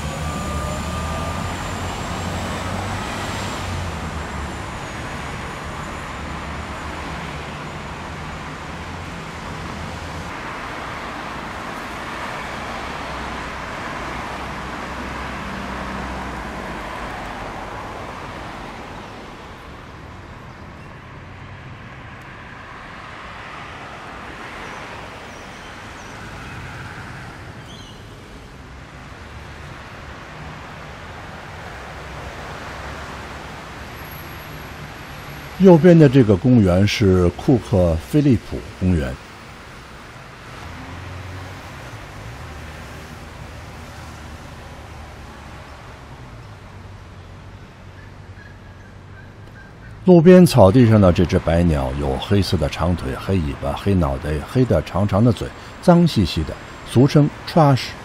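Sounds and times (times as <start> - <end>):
faint high-pitched squeal: 0.0 - 1.8
cars and buses passing: 0.0 - 58.0.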